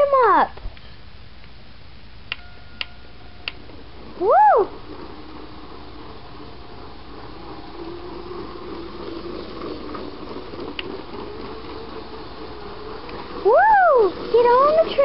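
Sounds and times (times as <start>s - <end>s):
soft hiss: 0.4s - 15.0s
toy train motor hum: 3.1s - 15.0s.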